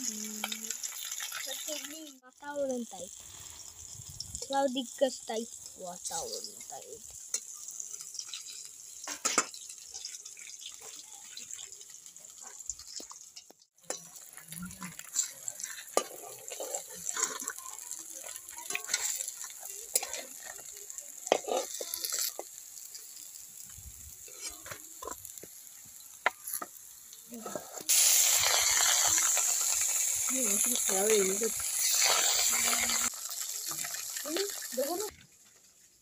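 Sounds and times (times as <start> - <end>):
fish sizzling in hot oil: 0.0 - 36.0
metal spatula scraping a pan: 12.3 - 23.3, 24.2 - 25.5, 27.3 - 29.3.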